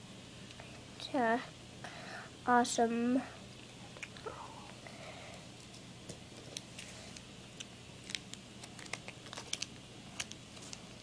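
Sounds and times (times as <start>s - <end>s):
cards clicking and rustling: 5.7s - 11.0s.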